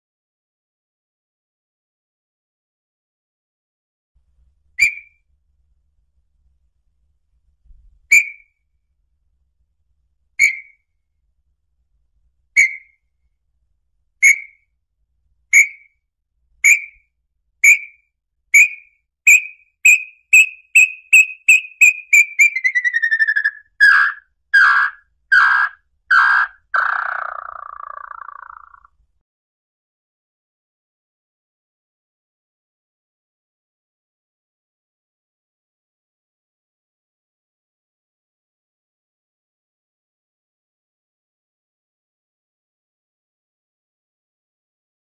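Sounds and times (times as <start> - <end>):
bird whistled notes: 4.8 - 5.2, 8.1 - 8.5, 10.4 - 10.8, 12.6 - 13.0, 14.2 - 14.6, 15.6 - 15.9, 16.6 - 17.0, 17.6 - 18.0, 18.6 - 28.9
rough bird notes: 18.6 - 28.9.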